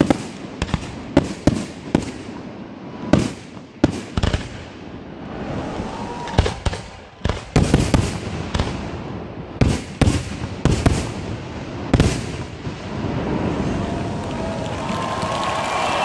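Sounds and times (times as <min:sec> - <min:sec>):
firework bangs with rumbling echo: 0:00.0 - 0:05.3, 0:06.3 - 0:13.8.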